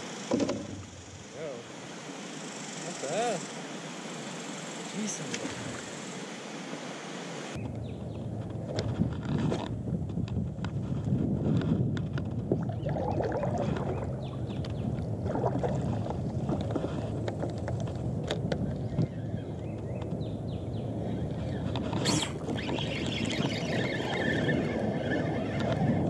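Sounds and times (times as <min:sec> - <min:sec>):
water sloshing around board: 0:12.4 - 0:18.1.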